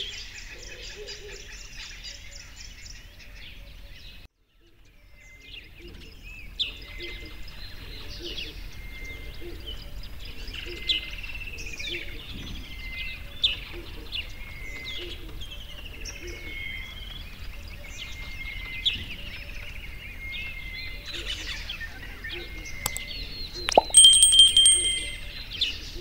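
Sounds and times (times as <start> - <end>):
sharp click: 23.7 - 25.2.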